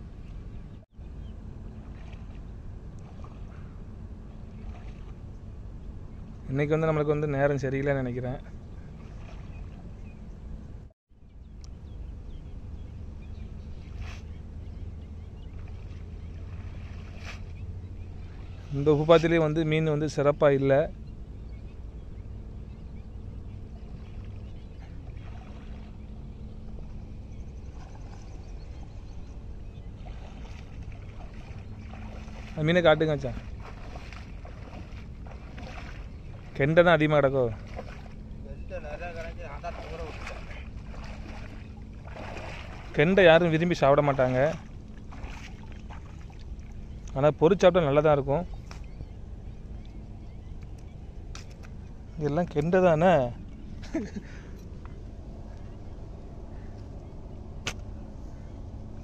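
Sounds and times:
faint splashing of shallow water: 0:00.0 - 0:10.6, 0:11.6 - 0:21.0, 0:22.5 - 0:59.0
faint distant sounds: 0:00.0 - 0:59.0
wind rumbling on microphone: 0:00.0 - 0:59.0.

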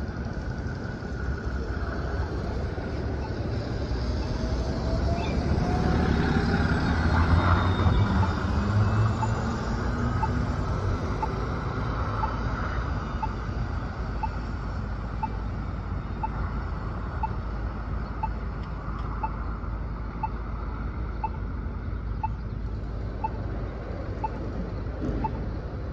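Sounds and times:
bus pulling away: 0:00.0 - 0:25.9
passing traffic: 0:00.0 - 0:25.9
crossing signal beeping: 0:03.0 - 0:04.4, 0:06.7 - 0:12.4, 0:13.0 - 0:18.4, 0:19.2 - 0:19.5, 0:20.1 - 0:20.4, 0:21.1 - 0:21.4, 0:22.1 - 0:22.5, 0:23.1 - 0:23.5, 0:24.2 - 0:25.6.

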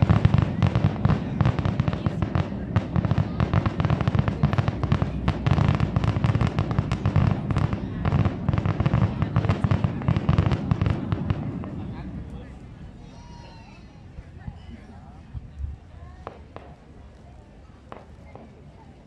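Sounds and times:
fireworks bangs and crackles: 0:00.0 - 0:13.0, 0:16.2 - 0:17.0, 0:17.8 - 0:18.9.

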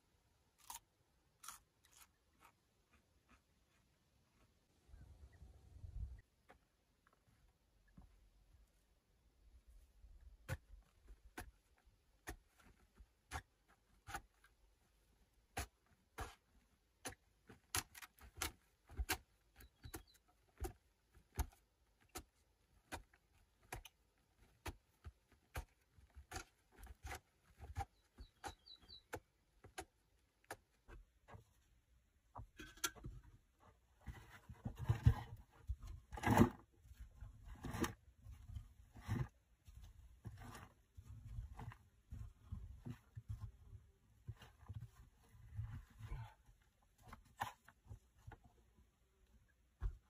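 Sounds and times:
hand pick chipping earth: 0:10.4 - 0:31.2.

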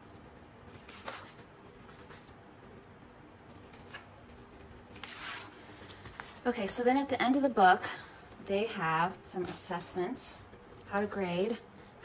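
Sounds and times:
paper pages rustling: 0:00.6 - 0:07.5.

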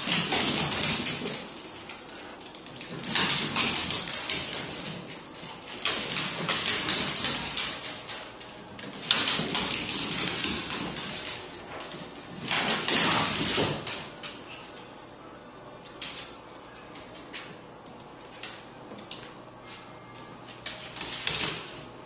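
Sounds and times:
paws scrabbling on hardwood floor: 0:00.0 - 0:14.9.

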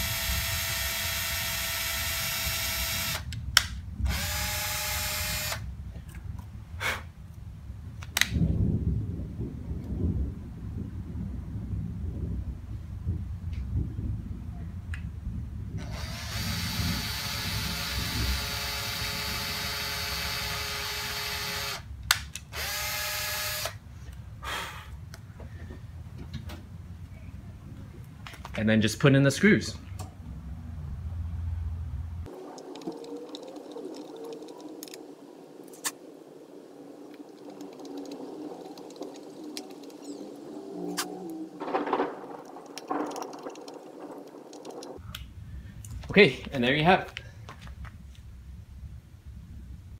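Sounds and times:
cordless drill boring: 0:00.0 - 0:03.3, 0:04.1 - 0:05.6, 0:15.8 - 0:21.9, 0:22.5 - 0:23.8
steady low drone: 0:29.8 - 0:46.0.

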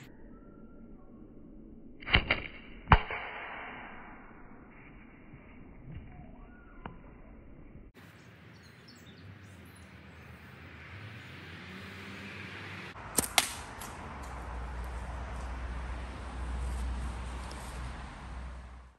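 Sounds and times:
outdoor background: 0:00.0 - 0:18.9
slingshot sharp cracks: 0:02.0 - 0:04.3, 0:13.0 - 0:14.4.

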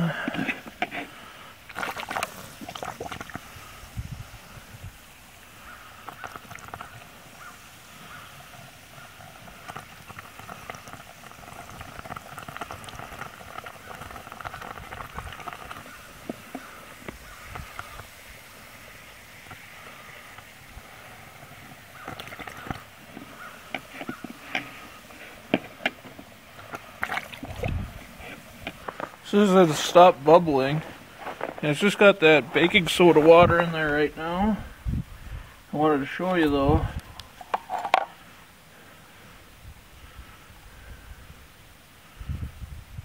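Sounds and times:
water trickling through funnel: 0:00.0 - 0:04.6, 0:05.5 - 0:18.6, 0:19.3 - 0:30.9, 0:36.6 - 0:38.2
liquid fizzing and crackling: 0:00.1 - 0:33.4.

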